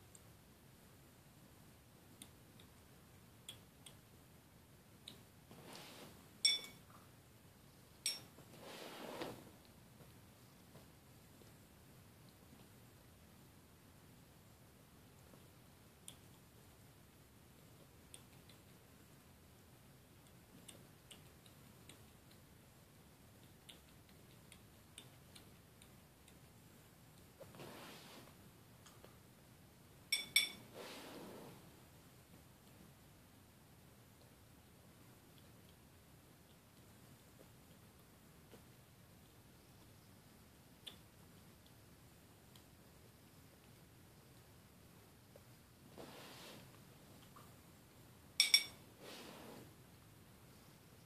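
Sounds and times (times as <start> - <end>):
soft rustle: 5.4 - 7.1, 7.7 - 11.7, 27.2 - 29.3, 30.4 - 32.9, 43.6 - 49.9.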